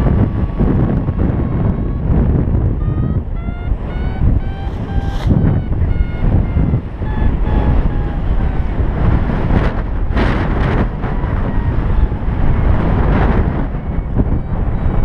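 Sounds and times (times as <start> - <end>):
wind buffeting microphone: 0.0 - 15.0
variometer short beeps: 1.4 - 8.8.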